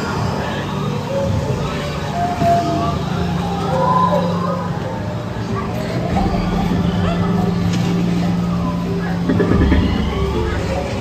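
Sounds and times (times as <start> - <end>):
faint music: 0.0 - 11.0
steady low hum: 0.0 - 11.0
deep rumble: 5.3 - 11.0.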